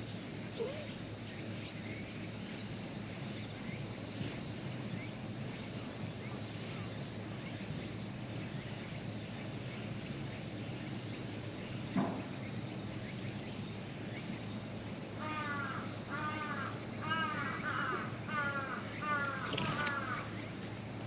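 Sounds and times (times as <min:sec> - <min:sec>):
steady low hum: 0:00.0 - 0:21.0
crow cawing: 0:15.2 - 0:20.3.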